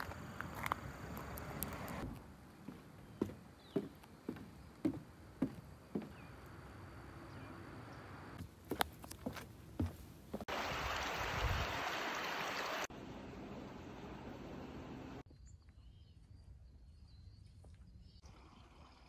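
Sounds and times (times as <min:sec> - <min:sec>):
faint bird chirps: 0:15.3 - 0:18.4.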